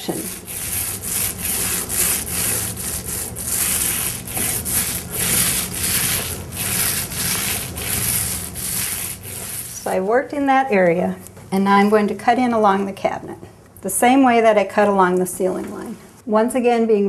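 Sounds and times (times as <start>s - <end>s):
paint roller swishing on wall: 0.0s - 10.2s.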